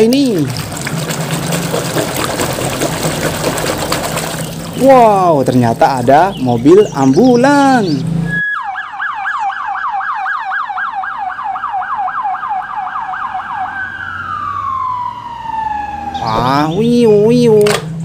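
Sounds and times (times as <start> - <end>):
ambulance siren yelping: 8.1 - 17.6.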